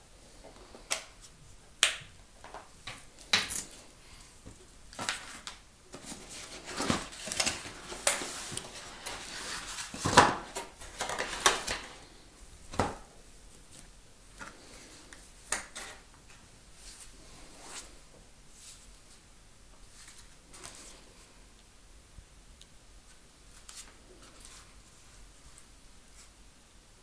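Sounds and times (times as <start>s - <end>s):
wrapping and cardboard rustling: 4.9s - 13.8s.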